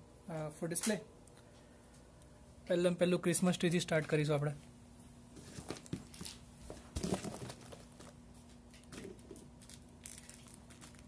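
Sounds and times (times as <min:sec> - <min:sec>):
faint steady hum: 0:00.0 - 0:11.0
box bumping on carpet: 0:05.4 - 0:08.1
cardboard box rustling: 0:05.4 - 0:08.2.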